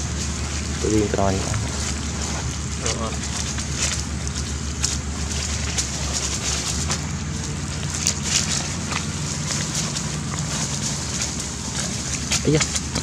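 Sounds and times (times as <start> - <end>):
low rumble: 0.0 - 13.0
small crackles and clicks: 0.1 - 13.0.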